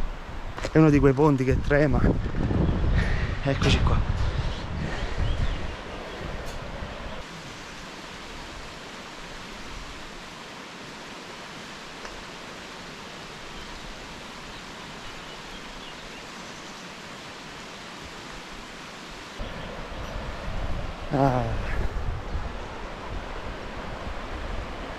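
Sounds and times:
river water flowing: 5.0 - 24.9.

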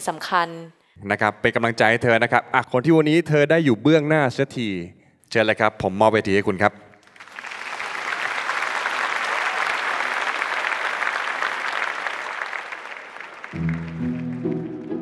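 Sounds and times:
audience applauding: 7.0 - 15.0
slow music with low notes: 13.6 - 15.0.

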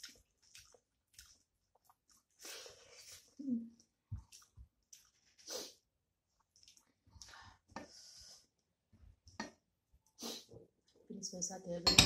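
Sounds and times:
person chewing: 0.0 - 7.4
breath through nose: 5.4 - 5.8, 10.2 - 10.5.

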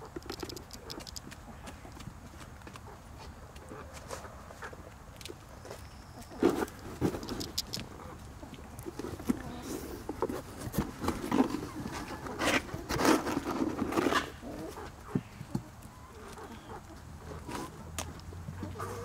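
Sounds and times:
chickens scratching in straw: 0.3 - 4.8, 8.9 - 17.9, 18.6 - 19.0.

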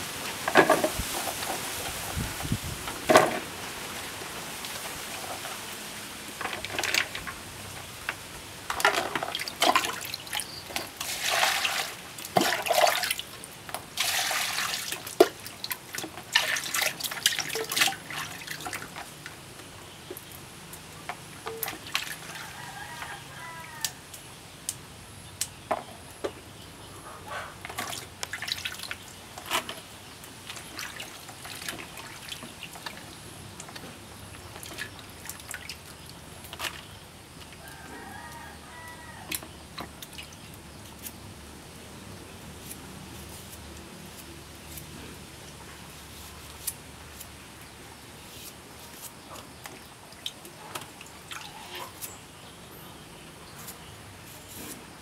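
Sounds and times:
water splashing in basin: 8.9 - 13.3, 14.0 - 19.0
chicken calling: 22.4 - 24.0.

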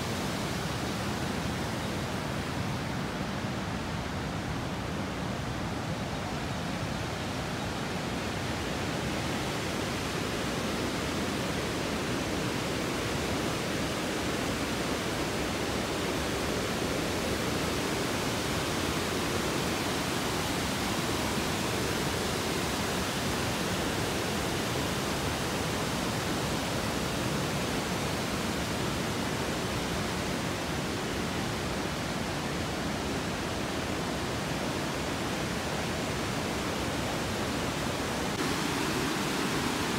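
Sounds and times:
river water rushing: 0.0 - 39.9.

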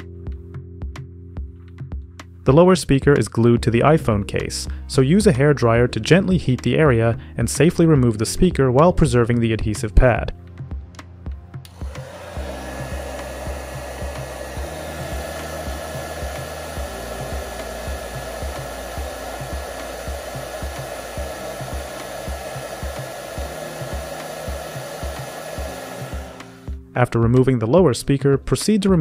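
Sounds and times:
hair dryer blowing: 11.7 - 26.8.

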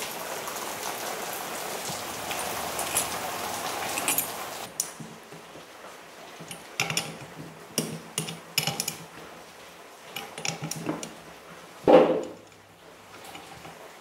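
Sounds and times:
socket clinking on metal nuts: 3.9 - 5.0, 6.5 - 9.1, 10.2 - 11.2
metal knock: 11.9 - 12.4.

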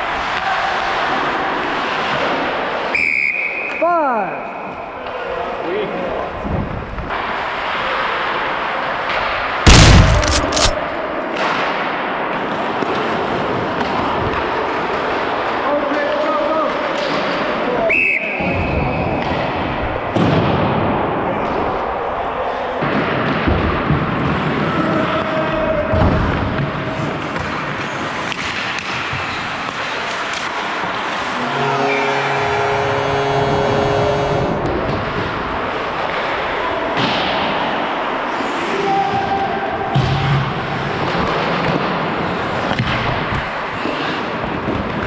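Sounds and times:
skates and wind rushing: 0.0 - 3.7, 6.2 - 9.6, 10.8 - 31.4, 34.5 - 45.0
loud bang: 9.7 - 10.8.

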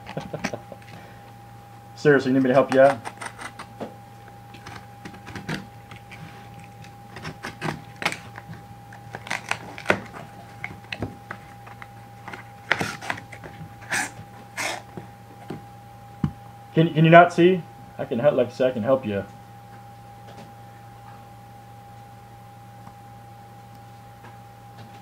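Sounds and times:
tape seal rasping: 2.8 - 3.7, 4.6 - 14.9
cardboard and tape rustling: 4.5 - 15.6.

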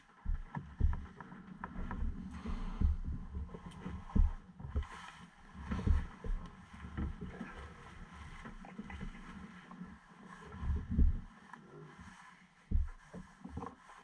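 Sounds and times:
dull low knocks: 0.2 - 4.9, 12.7 - 13.0.

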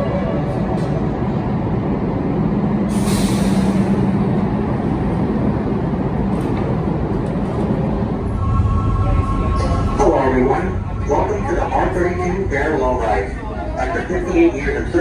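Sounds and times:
subway train rumble: 0.0 - 15.0
air hiss: 2.9 - 3.8.

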